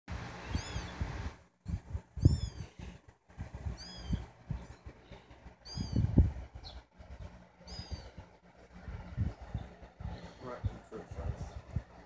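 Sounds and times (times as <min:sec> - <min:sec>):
kittens mewing: 0:02.1 - 0:03.0, 0:03.7 - 0:04.4, 0:05.6 - 0:06.3, 0:07.6 - 0:08.3.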